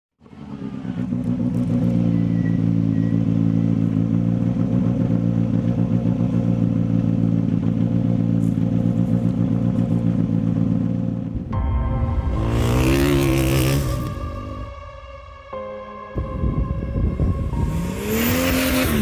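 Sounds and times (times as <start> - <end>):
vehicle engine running: 0.2 - 11.6, 12.2 - 14.7.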